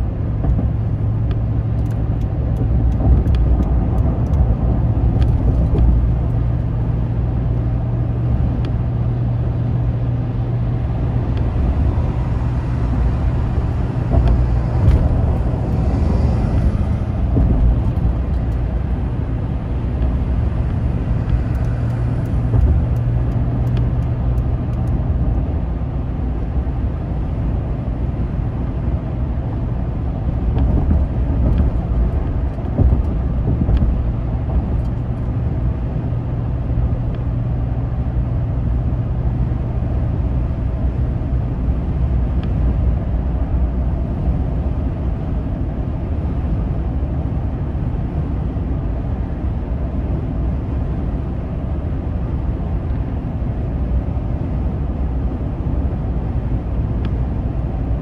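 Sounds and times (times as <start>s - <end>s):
tyres rumbling on pavement: 0.0s - 26.8s, 27.6s - 45.1s.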